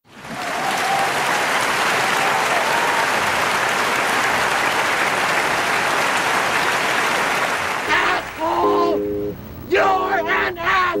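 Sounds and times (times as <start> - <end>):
crowd applauding: 0.0 - 8.5.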